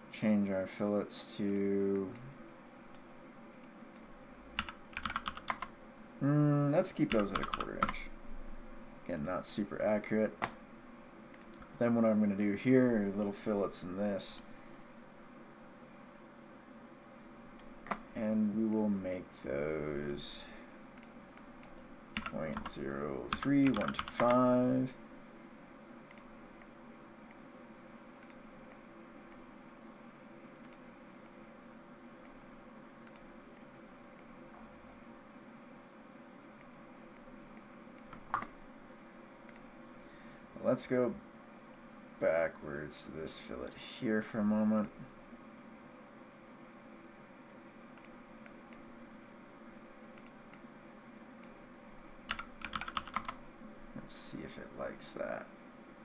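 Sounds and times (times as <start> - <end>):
low electrical hum: 0.0 - 56.0
keyboard typing: 4.6 - 5.7, 7.0 - 8.0, 21.0 - 24.5, 38.0 - 38.5, 52.3 - 53.4
mouse clicking: 26.1 - 27.4, 28.2 - 29.4, 33.0 - 34.3, 48.0 - 48.9.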